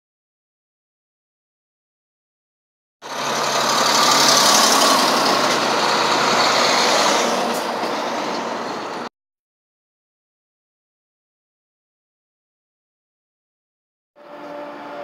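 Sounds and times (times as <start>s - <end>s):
trucks driving past: 3.0s - 9.1s.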